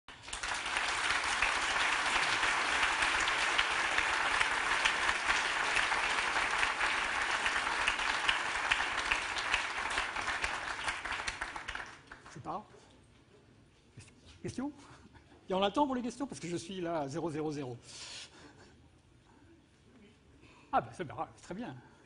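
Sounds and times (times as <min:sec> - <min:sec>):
audience applauding: 0:00.1 - 0:12.4.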